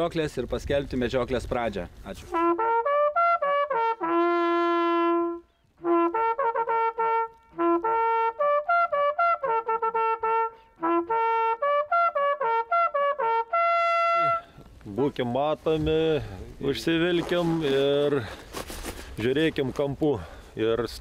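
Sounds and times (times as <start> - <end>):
hunting horn fanfare: 2.3 - 14.6.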